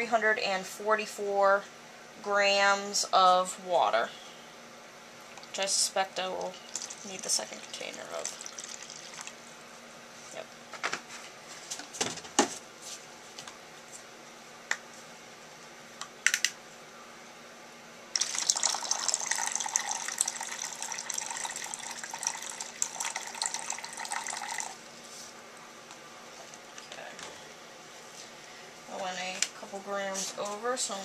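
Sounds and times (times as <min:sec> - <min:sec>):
water pouring into plastic container: 0:06.7 - 0:09.4, 0:18.2 - 0:24.8.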